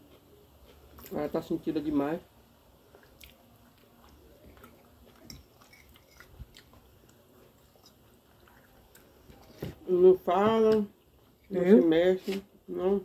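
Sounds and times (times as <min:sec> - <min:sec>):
faint chewing: 0:02.8 - 0:09.8.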